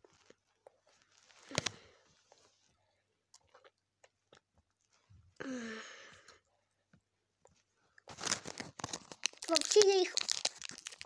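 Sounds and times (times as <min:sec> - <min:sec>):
child chewing gum: 0:09.0 - 0:11.0.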